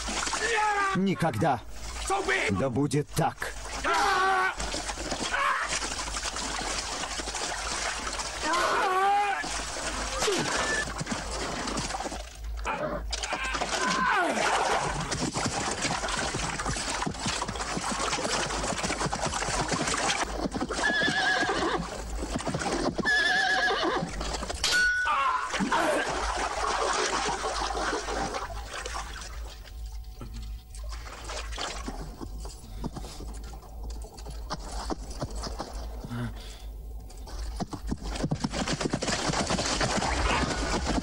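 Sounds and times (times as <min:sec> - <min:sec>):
horses whinnying: 0:08.4 - 0:11.5, 0:12.6 - 0:15.7, 0:20.5 - 0:26.3, 0:39.1 - 0:41.0.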